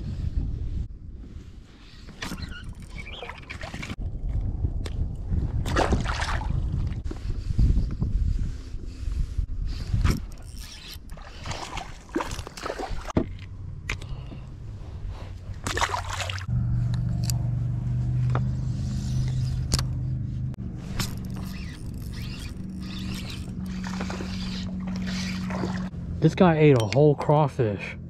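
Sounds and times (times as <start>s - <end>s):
low mechanical hum: 13.2s - 26.9s
fishing gear handling clicks and knocks: 20.9s - 24.5s.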